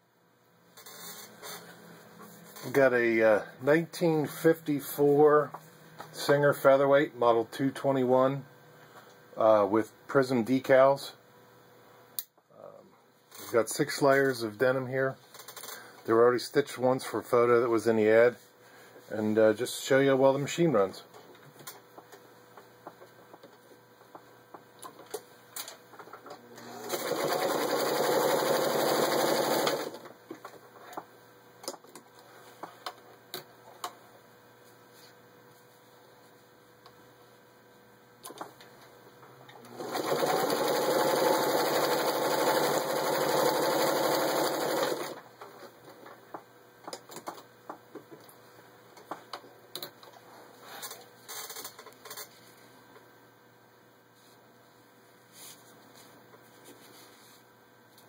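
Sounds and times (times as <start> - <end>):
sewing machine running: 26.6 - 30.1, 39.6 - 45.3.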